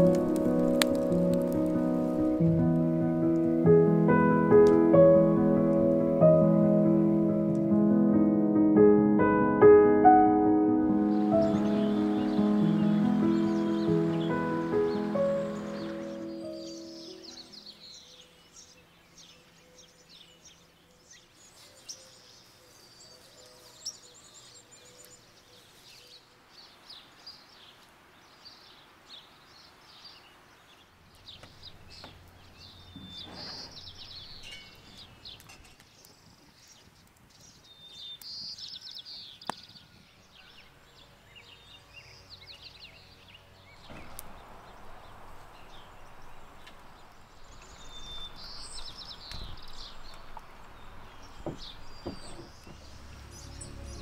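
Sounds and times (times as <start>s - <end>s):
outdoor background hiss: 0.0s - 54.0s
small birds chirping: 11.0s - 54.0s.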